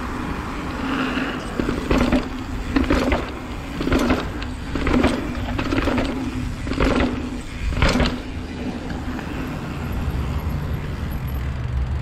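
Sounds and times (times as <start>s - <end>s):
tyres rumbling over paving: 0.0s - 12.0s
bike tyres thumping down steps: 1.5s - 9.1s.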